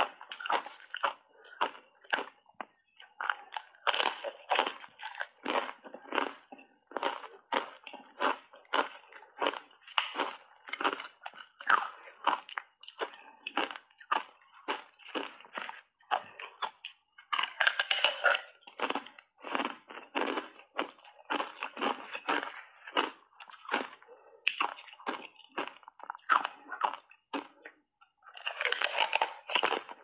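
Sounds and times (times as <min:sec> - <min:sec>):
ice crunched while chewing: 0:00.0 - 0:30.0.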